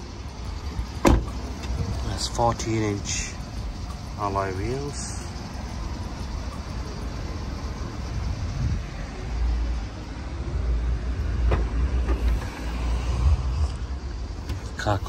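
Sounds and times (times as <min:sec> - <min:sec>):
car tailgate latch click: 0:01.0 - 0:01.8
wind on microphone: 0:08.3 - 0:09.0.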